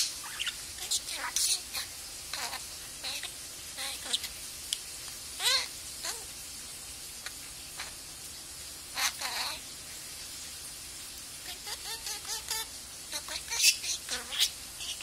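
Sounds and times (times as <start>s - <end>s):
budgerigar chattering: 11.5s - 15.0s.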